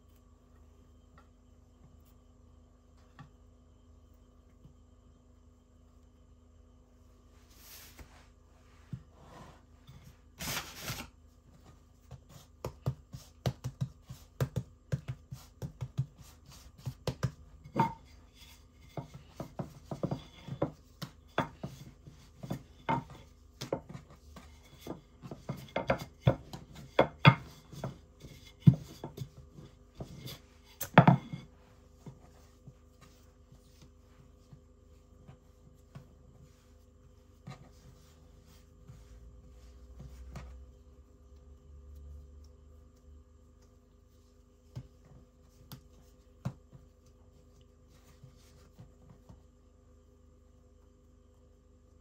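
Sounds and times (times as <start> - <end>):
objects knocked on kitchen counter: 30.8 - 31.5.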